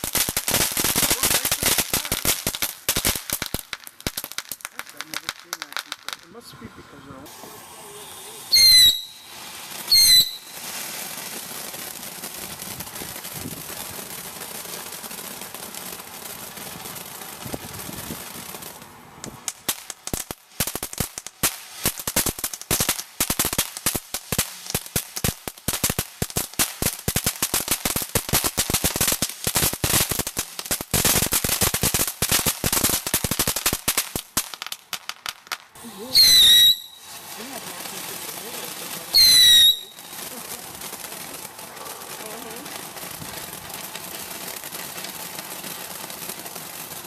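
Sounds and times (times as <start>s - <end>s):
firework crackling: 0.0s - 47.0s
firework hissing: 0.0s - 47.0s
high falling whistle: 8.5s - 10.6s, 36.1s - 37.1s.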